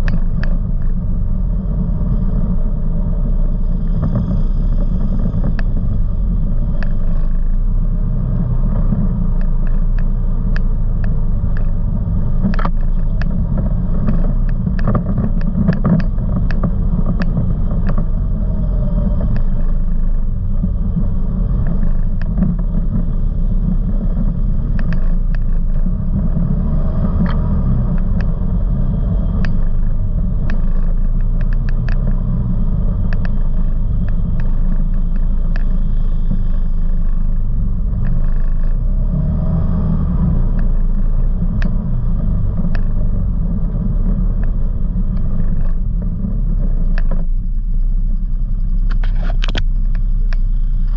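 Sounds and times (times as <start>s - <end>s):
atv engines rumbling: 0.0s - 50.9s
rattling clicks and knocks: 8.8s - 18.5s.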